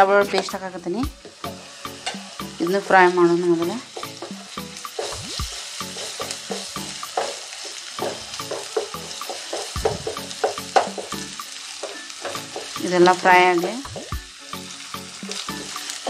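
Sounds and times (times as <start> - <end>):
onions sizzling in hot oil: 0.0 - 16.0
spatula scraping a pan: 4.2 - 11.2.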